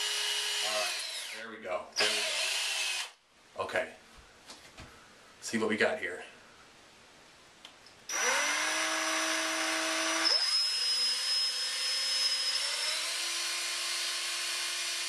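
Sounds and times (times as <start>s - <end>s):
cordless drill motor whining: 0.0s - 1.4s, 2.0s - 3.2s, 8.1s - 15.0s.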